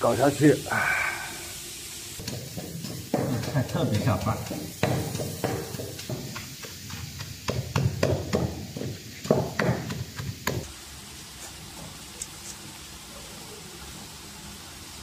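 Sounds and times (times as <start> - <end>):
pestle pounding in stone mortar: 2.2 - 10.7.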